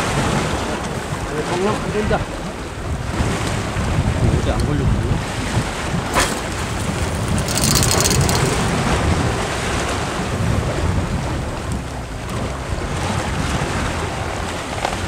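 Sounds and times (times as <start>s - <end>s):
wind buffeting microphone: 0.2s - 15.0s
sea waves washing against rocks: 2.9s - 15.0s.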